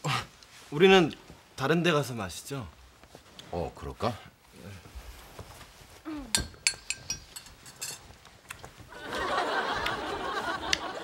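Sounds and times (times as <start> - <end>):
coffee cups and dishes clinking: 6.4 - 8.2
studio audience laughter: 8.9 - 11.0.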